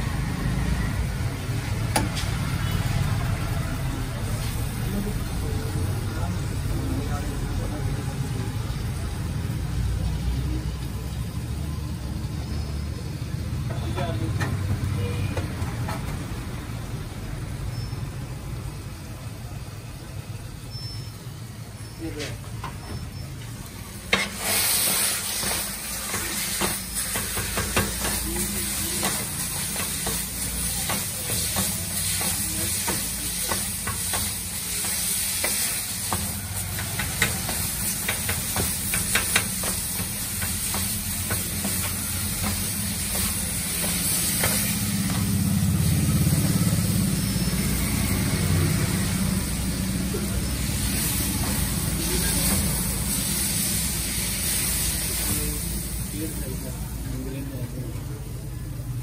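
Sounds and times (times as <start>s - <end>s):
sizzle of frying: 0.0s - 59.0s
metal scrapers clacking on griddle: 24.0s - 46.7s.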